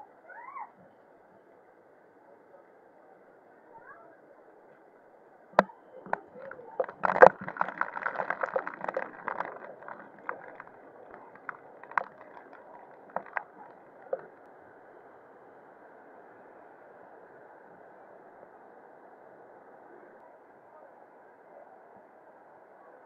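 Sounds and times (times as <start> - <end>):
sharp clicks and knocks: 5.6 - 14.3.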